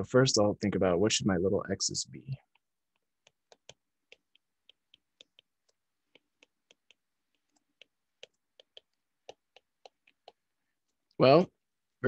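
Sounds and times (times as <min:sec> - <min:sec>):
stylus tapping on glass screen: 0:02.4 - 0:10.4.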